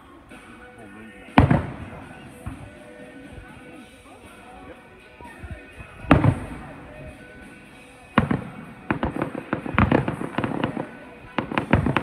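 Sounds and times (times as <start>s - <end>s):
firework crackling: 0.0s - 12.0s
firework bangs: 1.2s - 3.9s, 5.6s - 12.0s.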